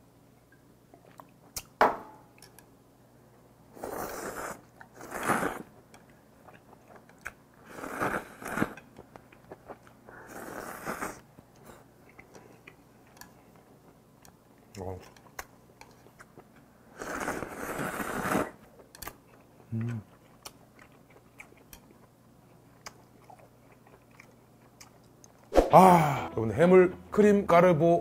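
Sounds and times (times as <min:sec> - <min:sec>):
noodle slurping: 0:17.0 - 0:18.6
person chewing: 0:18.8 - 0:25.6.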